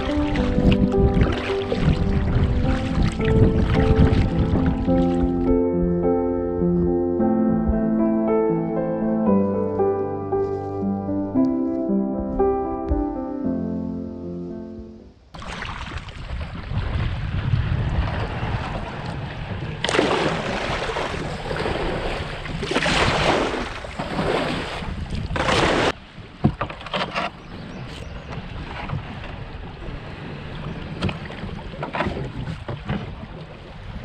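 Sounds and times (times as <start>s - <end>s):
paddle strokes: 0.0s - 5.5s, 9.3s - 13.1s, 19.8s - 34.0s
water splashing around canoe: 0.0s - 5.6s, 15.3s - 34.0s
wind on microphone: 0.0s - 8.0s, 15.4s - 26.6s, 27.2s - 34.0s.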